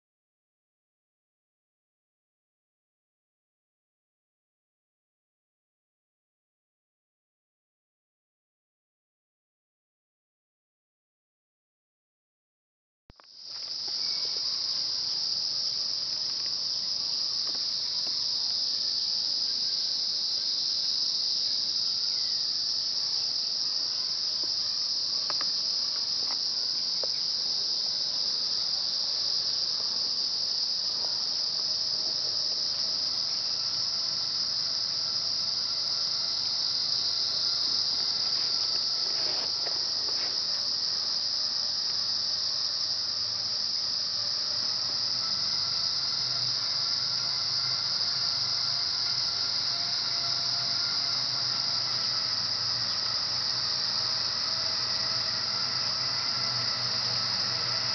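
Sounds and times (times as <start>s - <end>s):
insects droning: 13.1s - 57.9s.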